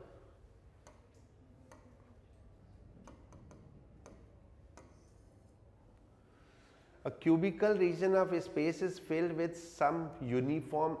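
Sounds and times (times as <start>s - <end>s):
taps on a touchscreen: 3.0s - 5.1s.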